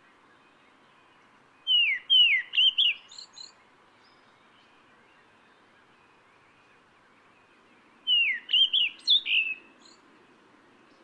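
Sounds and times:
thrush whistling call: 0:01.7 - 0:03.2, 0:08.1 - 0:09.7.

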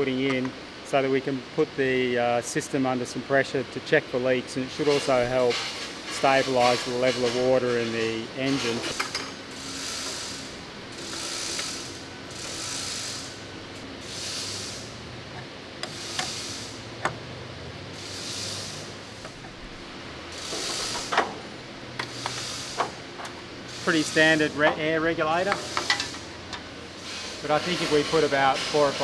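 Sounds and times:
mechanical ratcheting: 0:08.6 - 0:13.4.

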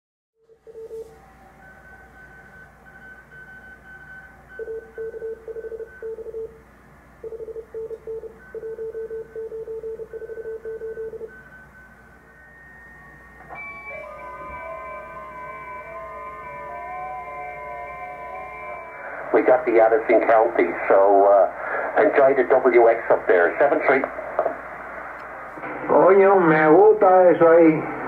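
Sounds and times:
morse code tone: 0:00.5 - 0:06.6, 0:07.2 - 0:24.0
fainter higher keyed tone: 0:11.3 - 0:20.9
radio whistling tones: 0:11.4 - 0:26.4
radio band hiss: 0:16.4 - 0:28.0.

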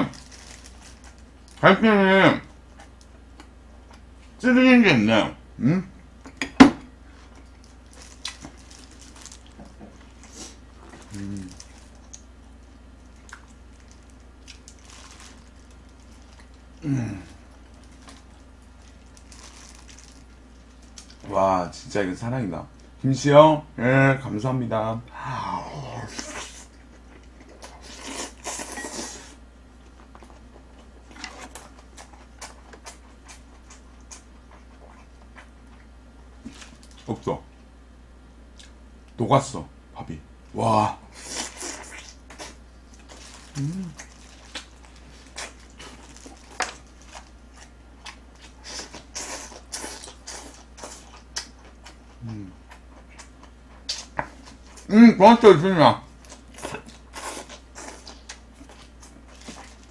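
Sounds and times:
person humming: 0:05.6 - 0:05.9, 0:11.1 - 0:11.6, 0:16.8 - 0:17.4, 0:43.5 - 0:44.0
soft chewing: 0:07.1 - 0:21.3, 0:26.0 - 0:37.7, 0:41.2 - 0:54.9, 0:56.1 - 0:59.9
open-mouthed chewing: 0:07.3 - 0:12.3, 0:41.2 - 0:54.9
squishy food sounds: 0:07.3 - 0:21.3.

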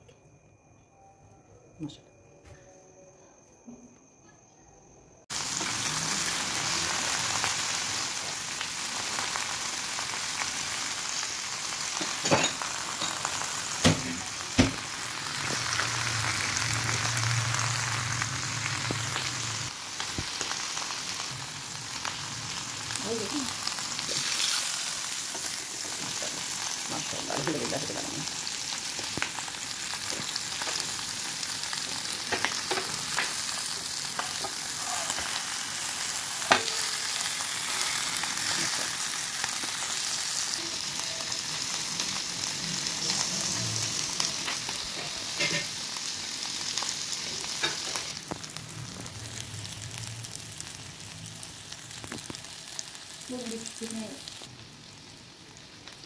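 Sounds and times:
meat sizzling in hot oil: 0:05.3 - 0:56.0.

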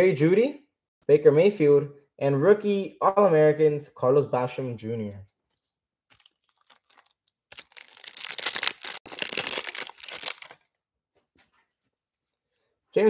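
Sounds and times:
foil wrapper crinkling and tearing: 0:06.1 - 0:10.7.

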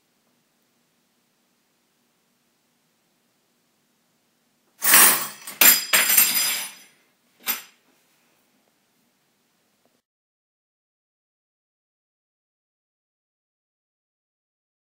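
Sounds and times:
dishes clattering in dish rack: 0:04.8 - 0:07.8.

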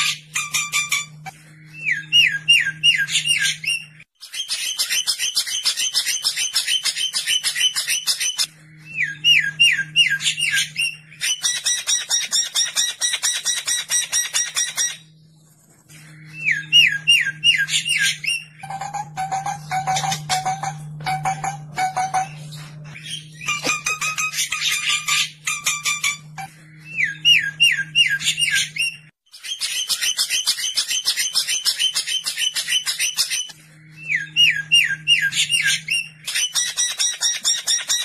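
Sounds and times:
fast rattling bird trill: 0:02.0 - 0:08.5, 0:09.1 - 0:15.0, 0:34.3 - 0:38.0.

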